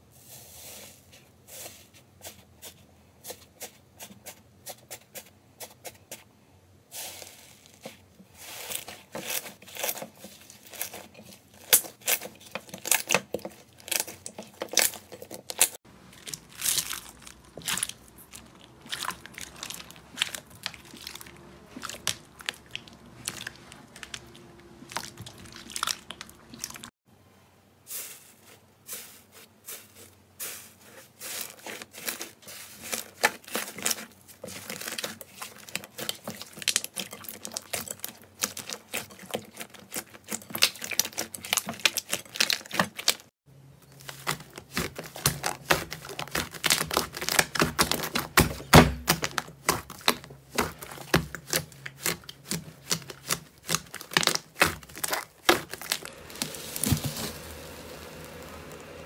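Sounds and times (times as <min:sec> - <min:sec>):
slime crust crackling: 0:07.0 - 0:26.9, 0:31.2 - 0:59.0
low steady hum: 0:55.8 - 0:59.0.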